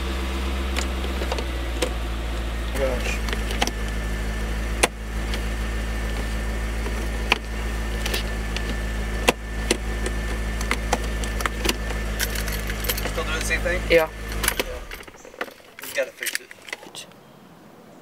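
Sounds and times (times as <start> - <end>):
car engine idling: 0.0 - 17.2
gear shifter clicks: 6.1 - 13.6, 14.2 - 17.0.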